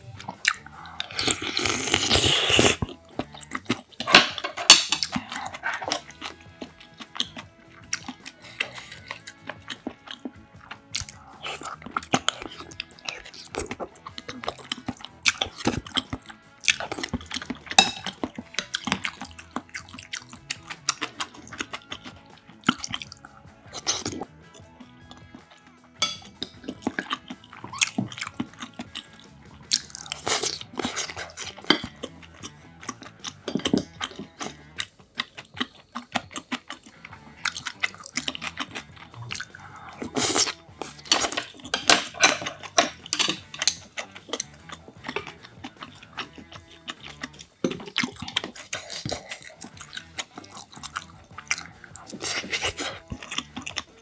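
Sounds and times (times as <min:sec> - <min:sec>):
wet chewing: 0:00.0 - 0:54.0
slurping soup from spoon: 0:00.4 - 0:03.8, 0:26.4 - 0:53.8
spoon and chopsticks clicking: 0:03.7 - 0:06.4, 0:16.7 - 0:19.4, 0:40.4 - 0:50.4.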